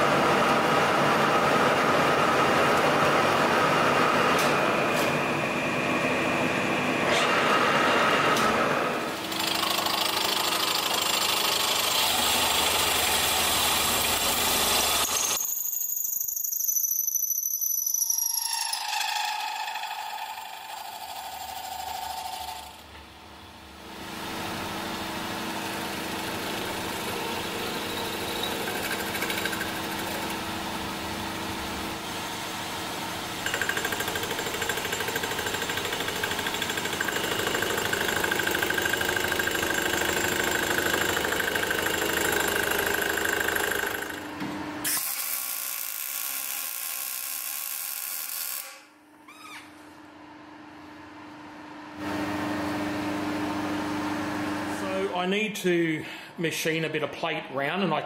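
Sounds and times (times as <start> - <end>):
milling machine cutting metal: 33.4 - 44.2.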